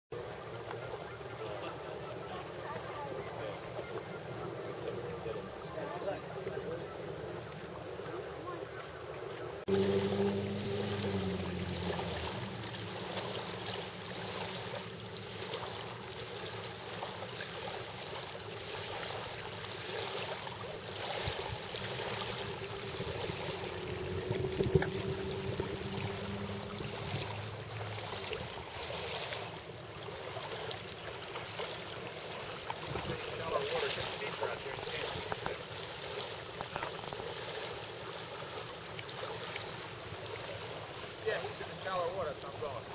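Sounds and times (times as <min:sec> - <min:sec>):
small water splashes: 0:00.2 - 0:42.9
waves washing over gravel: 0:09.7 - 0:38.7.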